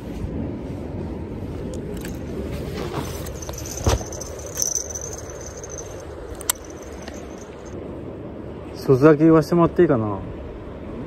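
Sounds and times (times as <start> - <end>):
high-pitched insect trill: 3.2 - 7.8.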